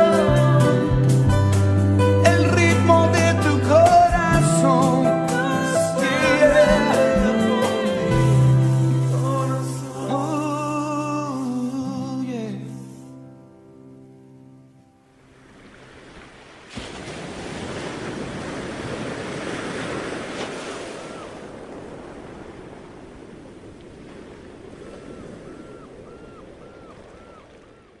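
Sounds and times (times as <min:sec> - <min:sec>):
water along rocky shore: 0:00.0 - 0:13.1, 0:14.7 - 0:28.0
rushing wind: 0:15.8 - 0:28.0.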